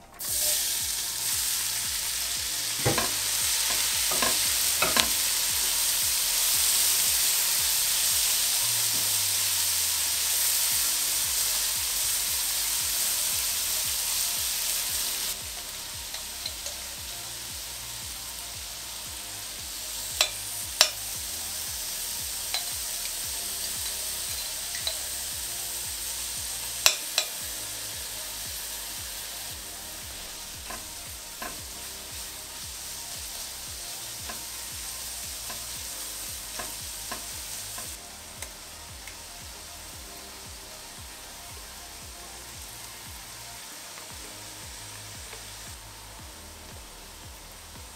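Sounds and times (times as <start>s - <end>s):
onions sizzling in oil: 0.0s - 47.9s
utensils knocking against pot: 2.8s - 3.2s, 4.1s - 5.2s.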